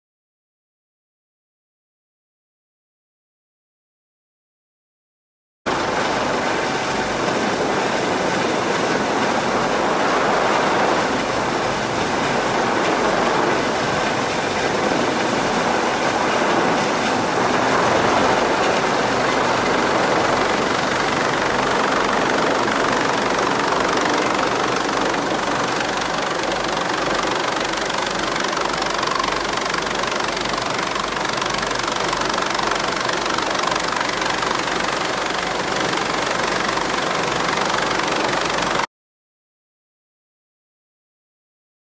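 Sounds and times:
helicopter rotor and turbine: 5.7s - 38.9s.

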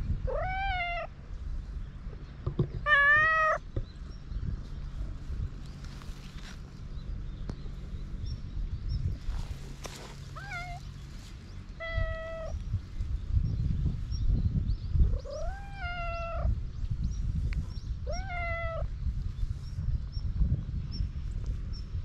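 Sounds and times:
cat meowing: 0.3s - 1.1s, 2.8s - 3.6s, 10.4s - 10.8s, 11.8s - 12.6s, 15.2s - 16.5s, 18.1s - 18.9s.

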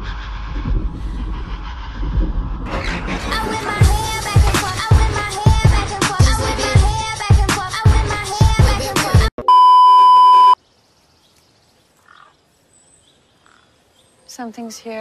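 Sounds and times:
pop music with heavy beat: 3.2s - 9.3s
loud electronic beep: 9.4s - 10.6s.

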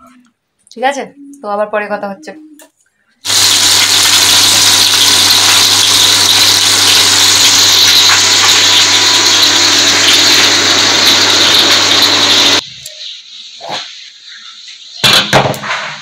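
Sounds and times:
small electric machine running: 3.3s - 12.6s.

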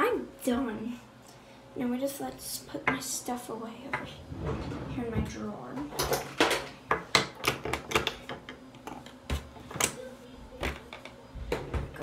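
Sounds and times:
plastic makeup items clacking on countertop: 6.0s - 10.0s.

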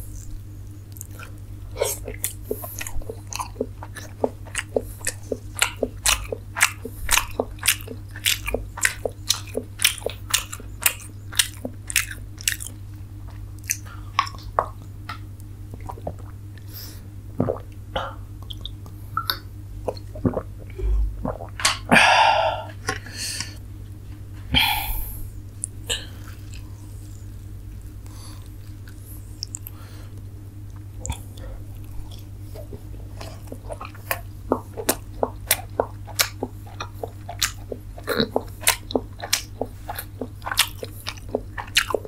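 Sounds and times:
steady low hum: 0.0s - 42.0s
wet mouth smacks chewing: 0.1s - 16.7s, 28.3s - 29.8s, 30.7s - 42.0s.

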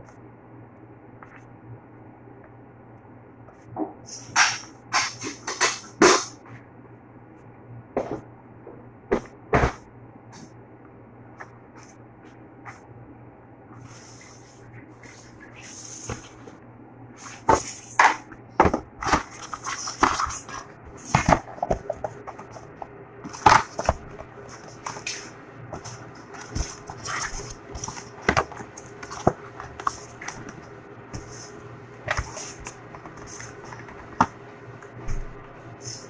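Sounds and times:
steady low hum: 0.0s - 36.0s
paper rustles: 19.0s - 30.6s
cardboard inserts tapping and knocking: 25.8s - 30.6s.

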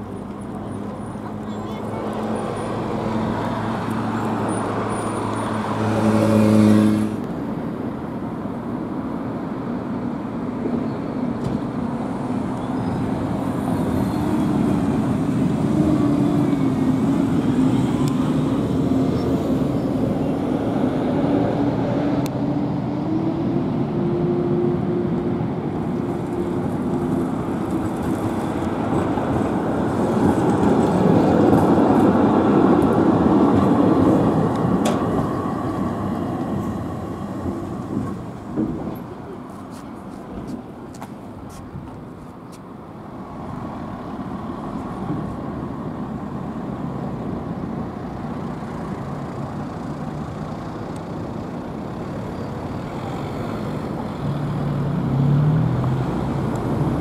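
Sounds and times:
bus engine passing: 0.0s - 57.0s
traffic hum: 0.0s - 57.0s
tram rolling by: 0.0s - 57.0s.

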